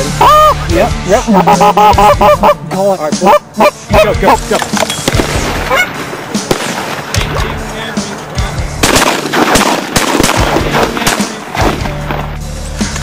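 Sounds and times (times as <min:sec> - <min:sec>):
shotgun shots: 0:04.5 - 0:07.7, 0:08.8 - 0:12.3.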